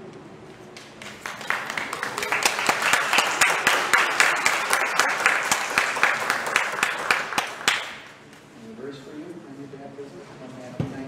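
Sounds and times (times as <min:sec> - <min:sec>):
congregation applauding: 0:00.8 - 0:08.2.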